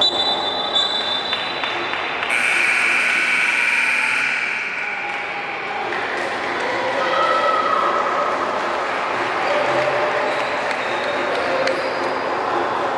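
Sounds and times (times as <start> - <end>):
high whistle tone: 0.0 - 1.6
spectators cheering and shouting: 3.2 - 12.9.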